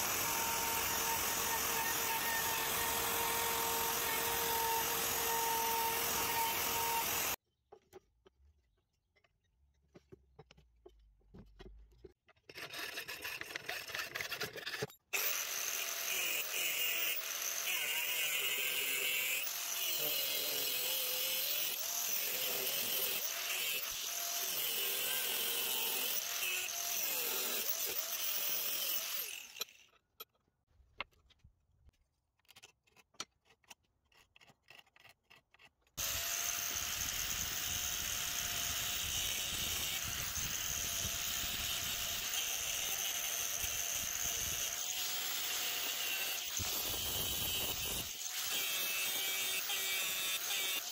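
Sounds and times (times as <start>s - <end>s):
angle grinder cutting steel: 0.0s - 7.4s, 15.2s - 30.0s, 36.0s - 50.9s.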